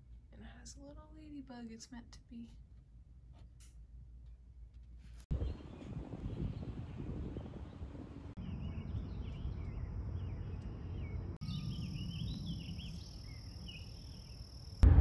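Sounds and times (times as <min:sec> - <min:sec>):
birds chirping: 0:05.3 - 0:14.4.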